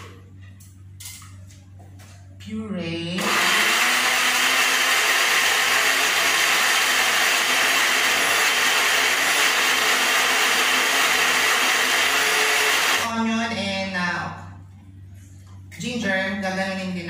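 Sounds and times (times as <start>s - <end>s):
electric blender running: 3.2s - 13.1s.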